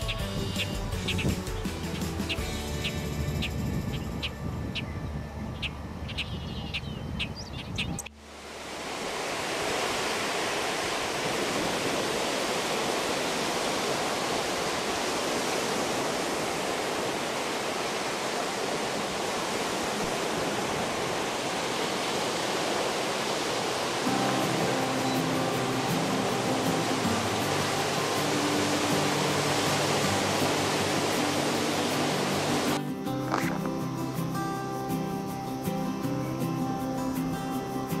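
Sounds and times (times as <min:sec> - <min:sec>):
high bird notes: 0:00.0 - 0:08.1
water rushing at shore: 0:08.1 - 0:38.0.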